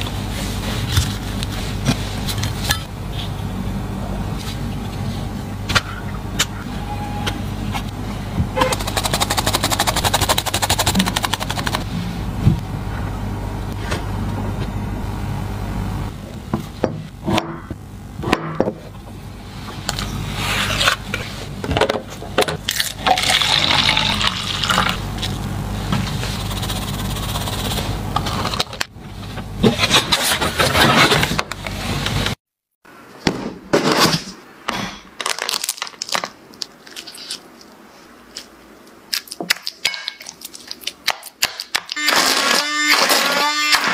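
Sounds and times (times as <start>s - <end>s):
low steady hum: 0.0s - 33.1s.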